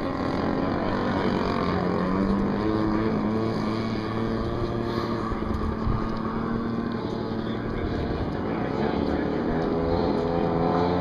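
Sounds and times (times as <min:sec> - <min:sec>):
model airplane engine buzzing: 0:00.0 - 0:11.0
wind noise on microphone: 0:05.2 - 0:06.6.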